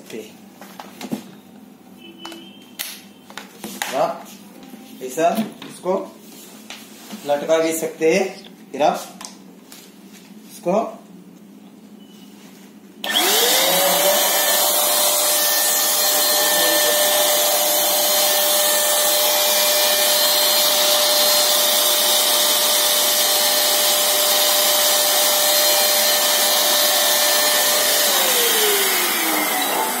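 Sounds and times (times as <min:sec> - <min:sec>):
spray machine motor whine: 0:13.0 - 0:30.0.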